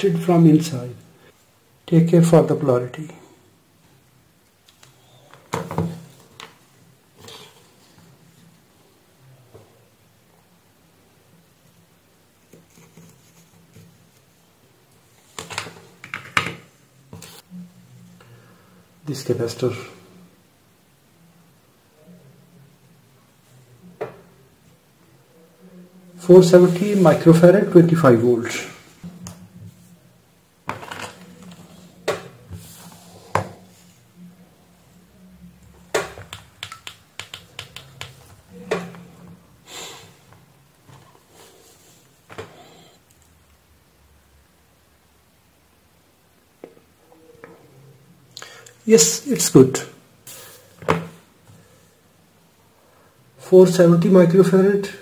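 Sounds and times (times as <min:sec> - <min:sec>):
faint low hum: 0:00.0 - 0:55.0
test probes clicking and tapping: 0:36.2 - 0:38.2.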